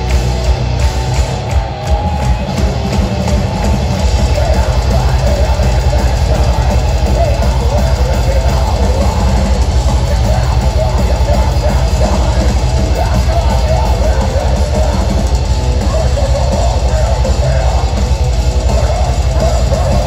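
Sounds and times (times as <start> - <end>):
bass guitar: 0.0 - 20.0
distorted electric guitars: 0.0 - 20.0
rapid kick drum: 0.0 - 20.0
vocalist singing into mic: 4.0 - 20.0.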